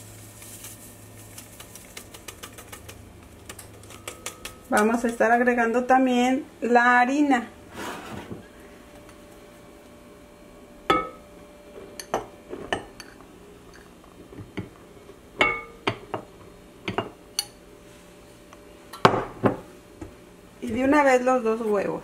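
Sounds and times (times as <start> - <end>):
glass bowls knocking and clinking: 10.9 - 11.2, 15.4 - 16.3.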